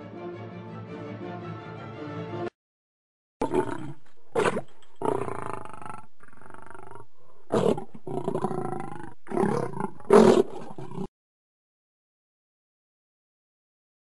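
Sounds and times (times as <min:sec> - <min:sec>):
big cat growling roars: 0:03.4 - 0:11.1.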